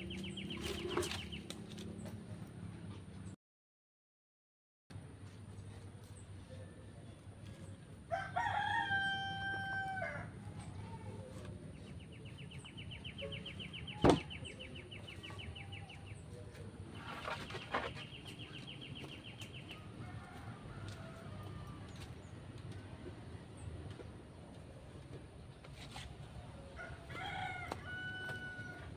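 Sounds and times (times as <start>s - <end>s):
rooster crowing: 8.1s - 10.3s, 26.8s - 28.9s.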